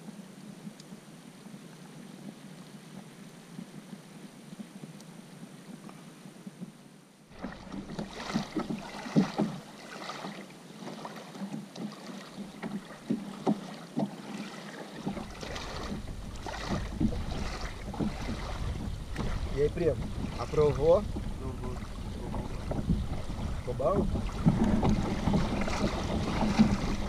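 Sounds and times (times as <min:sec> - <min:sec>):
small waves lapping: 0:07.3 - 0:27.0
wind buffeting microphone: 0:15.1 - 0:27.0.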